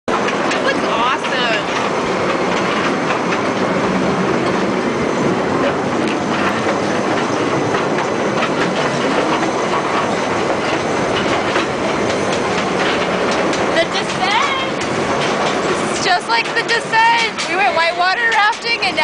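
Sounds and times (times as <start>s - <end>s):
train wheels clattering on track: 0.1s - 19.0s
scattered clicks: 5.6s - 19.0s.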